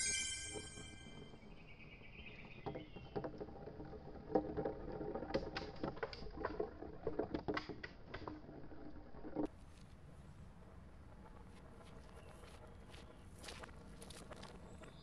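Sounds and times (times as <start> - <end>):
balls rolling on wooden track: 0.4 - 9.5
balls clicking at track joints: 0.8 - 9.5.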